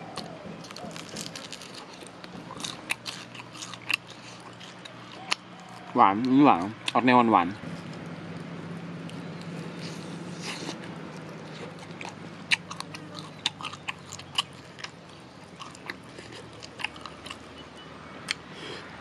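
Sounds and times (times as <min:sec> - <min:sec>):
person chewing crispy chicken: 0:00.0 - 0:07.0, 0:07.8 - 0:17.6.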